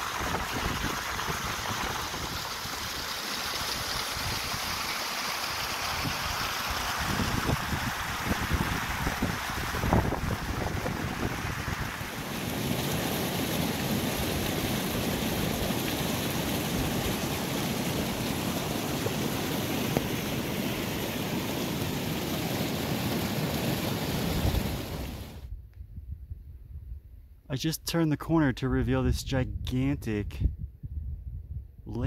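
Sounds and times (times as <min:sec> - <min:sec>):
wind buffeting microphone: 0:00.0 - 0:02.5, 0:07.0 - 0:12.1, 0:29.5 - 0:32.0.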